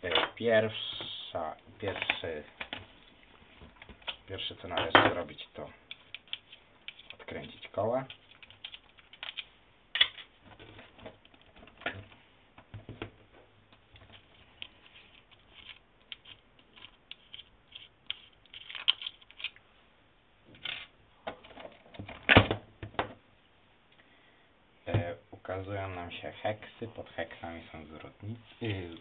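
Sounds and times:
clicks of small parts handled: 8.1s - 10.3s, 14.0s - 19.6s.

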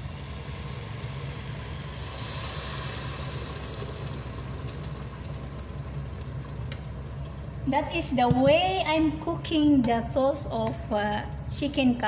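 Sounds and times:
sauce hissing and sizzling in a pot: 0.0s - 7.7s
steady low hum: 0.0s - 12.0s.

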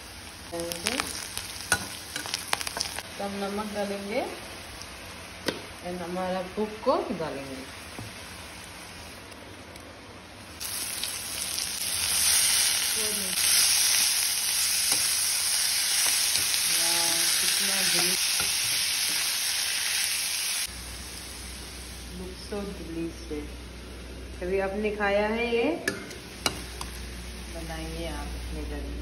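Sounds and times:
food sizzling in hot oil: 0.0s - 9.3s, 10.6s - 23.8s.

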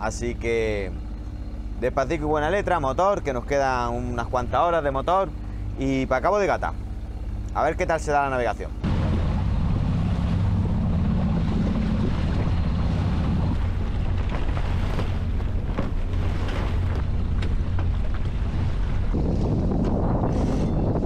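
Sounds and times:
boat engine humming: 0.0s - 21.0s
wind buffeting microphone: 8.8s - 21.0s.

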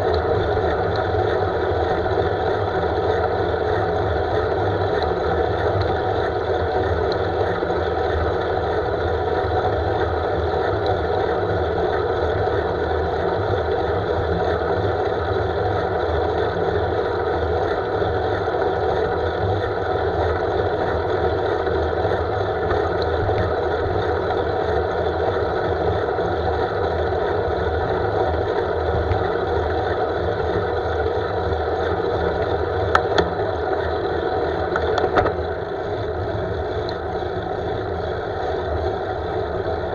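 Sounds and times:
bicycle road noise: 10.5s - 39.9s.

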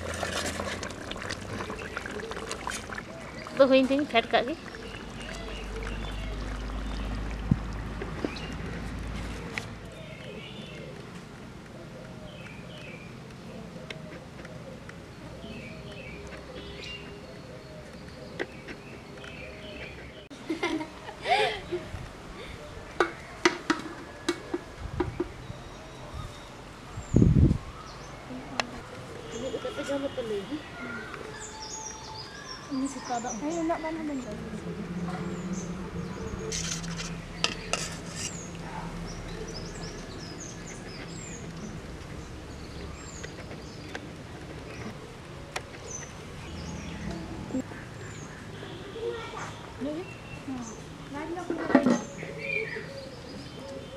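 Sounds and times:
small birds chirping: 1.4s - 20.6s, 24.5s - 53.9s.

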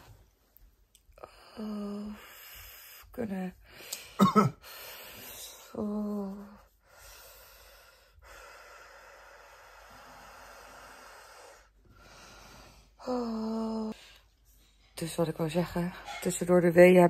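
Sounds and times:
woman humming low: 5.8s - 6.6s, 13.0s - 14.0s
woman moaning: 13.0s - 14.0s.

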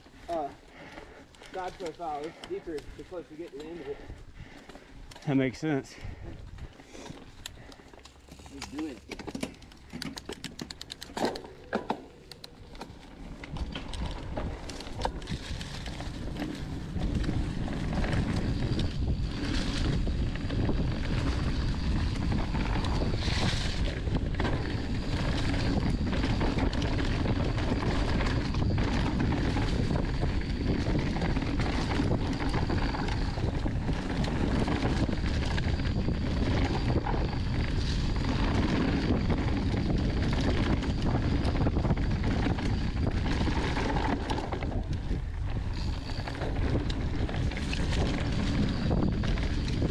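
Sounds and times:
bike tyres rumbling on dirt: 0.0s - 49.9s
wind buffeting microphone: 13.3s - 49.9s.

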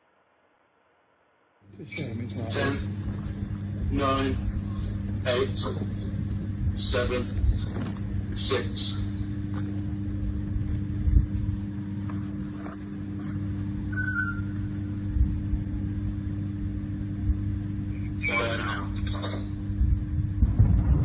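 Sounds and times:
low mechanical hum: 0.0s - 21.0s
dull low thumps: 9.2s - 13.9s, 14.7s - 17.6s, 19.7s - 21.0s.

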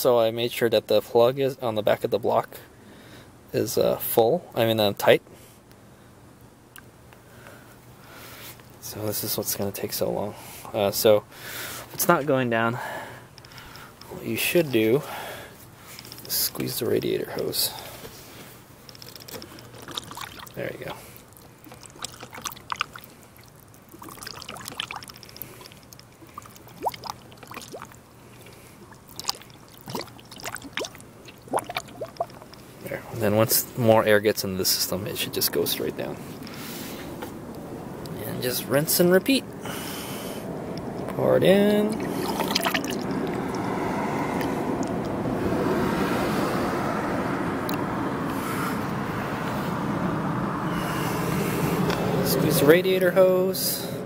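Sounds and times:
coolant gurgling: 19.2s - 33.6s, 38.8s - 45.5s
liquid pouring into a funnel: 19.6s - 32.6s, 41.7s - 43.7s
air bubbles popping: 19.8s - 20.6s, 21.3s - 32.6s, 41.7s - 43.7s.

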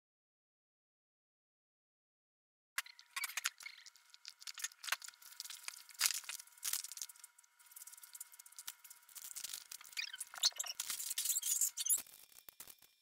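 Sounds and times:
faint steady hum: 2.8s - 13.0s
plastic bags crinkling: 4.2s - 10.0s.

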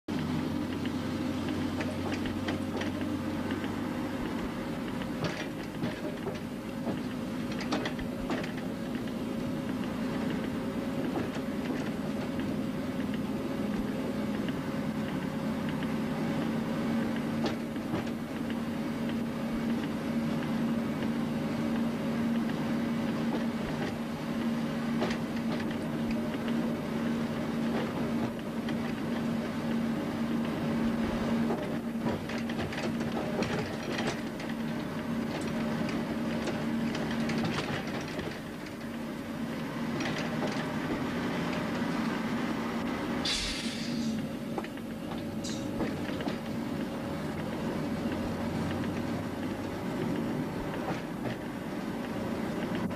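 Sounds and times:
wheels clicking over points: 0.1s - 42.2s
train mechanical drone: 0.1s - 52.9s.

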